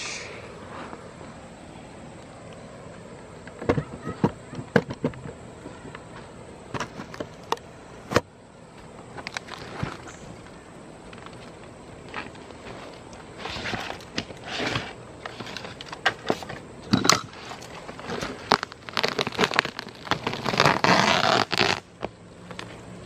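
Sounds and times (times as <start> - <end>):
roofing membrane tearing: 17.3 - 22.0.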